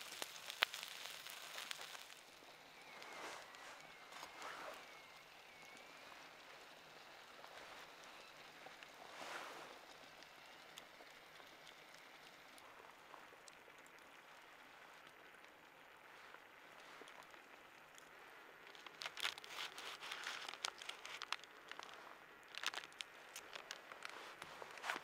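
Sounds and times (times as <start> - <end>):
close clicks and crunches: 0.0 - 6.7, 16.2 - 25.0
campfire crackling and popping: 0.0 - 25.0.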